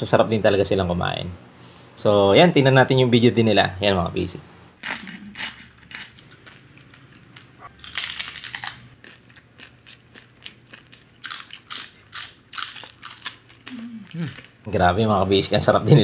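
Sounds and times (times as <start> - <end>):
people chewing and smacking: 4.8 - 14.8.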